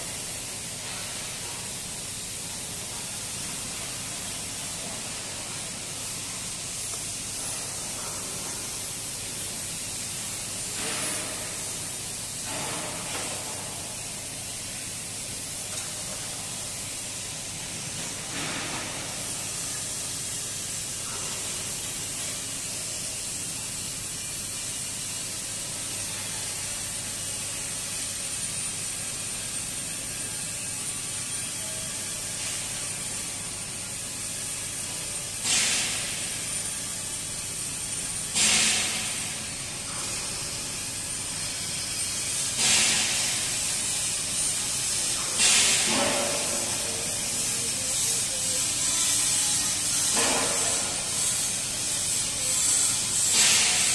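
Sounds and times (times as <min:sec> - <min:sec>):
short loud hissing bursts: 0:35.4 - 0:36.6, 0:38.2 - 0:41.4, 0:42.0 - 0:53.9
steady hissing: 0:38.2 - 0:53.9.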